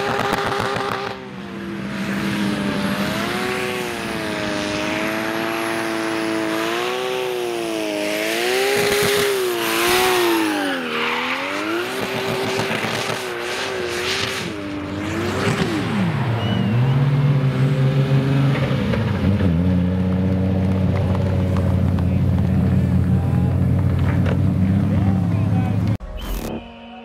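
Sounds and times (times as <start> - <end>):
car engine revving: 0.0 - 26.0.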